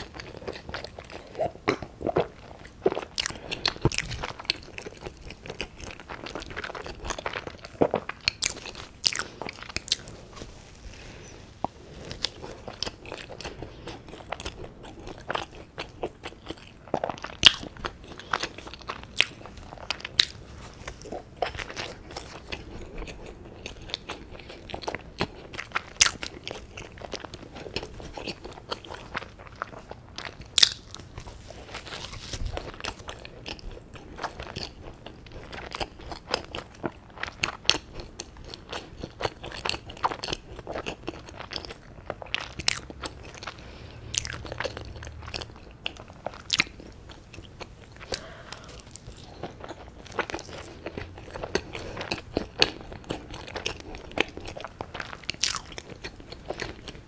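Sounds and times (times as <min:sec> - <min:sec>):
wet chewing with crunches: 0:00.0 - 0:57.0.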